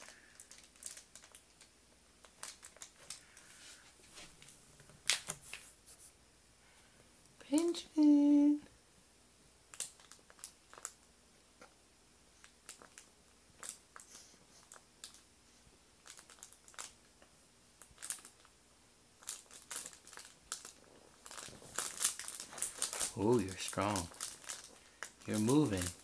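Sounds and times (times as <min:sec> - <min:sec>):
crinkly fabric rustling: 0:00.0 - 0:05.8, 0:16.0 - 0:17.0, 0:19.2 - 0:26.0.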